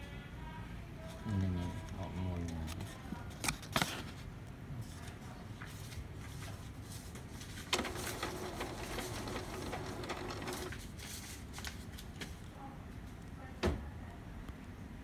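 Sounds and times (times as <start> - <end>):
printer mechanism humming: 7.6 - 10.8
printer clicks: 7.7 - 10.8.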